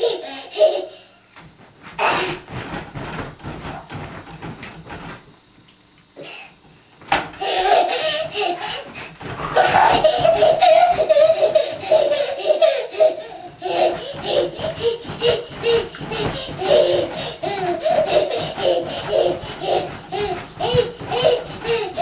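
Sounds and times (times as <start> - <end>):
wooden crib knocks and creaks: 1.9 - 5.3, 9.2 - 12.1, 13.1 - 22.0
toddler laughing and squealing: 9.5 - 22.0.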